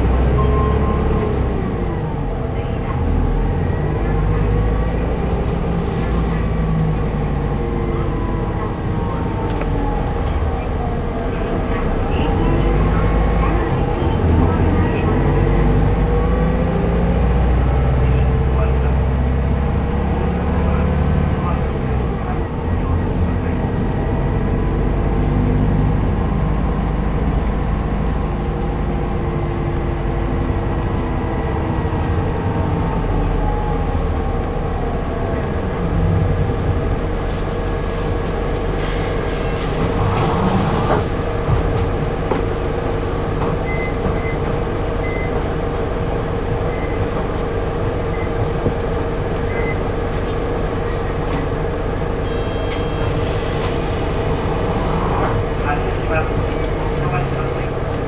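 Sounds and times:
bus engine running: 0.0 - 58.0.

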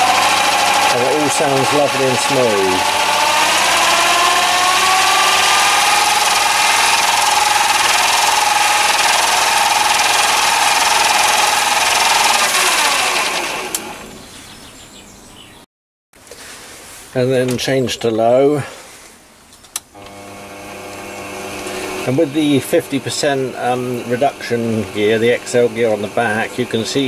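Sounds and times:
lathe motor whining: 0.0 - 14.2, 20.0 - 27.0.

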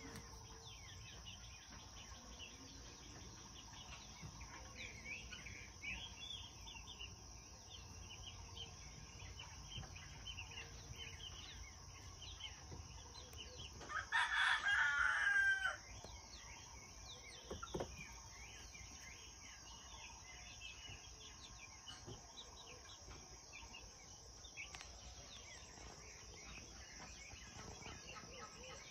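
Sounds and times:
chicks cheeping: 0.0 - 28.9
rooster crowing: 13.8 - 15.8.

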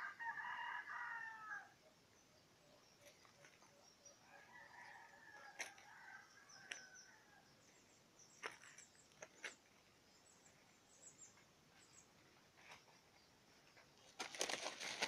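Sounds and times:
rooster crowing: 0.0 - 1.8, 4.2 - 7.4.

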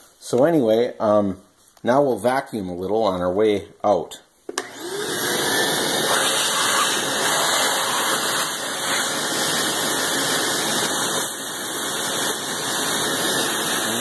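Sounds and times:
shop vac running: 4.5 - 14.0.

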